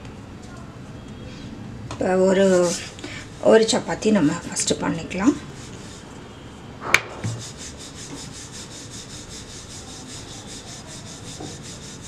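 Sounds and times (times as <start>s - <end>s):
sharp knock: 6.8s - 7.5s
rolling pin rolling dough: 7.5s - 12.0s.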